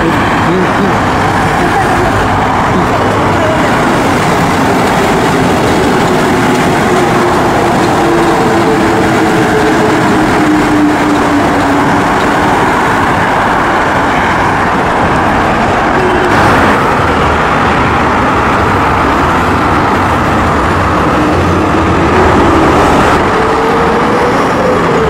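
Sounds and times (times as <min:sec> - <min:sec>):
train motor whine: 0:00.0 - 0:14.1
metro train passing: 0:00.0 - 0:25.0.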